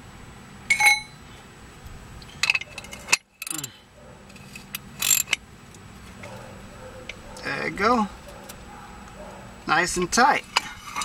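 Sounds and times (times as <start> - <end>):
ratchet wrench clicking: 2.4 - 3.7, 4.3 - 5.4.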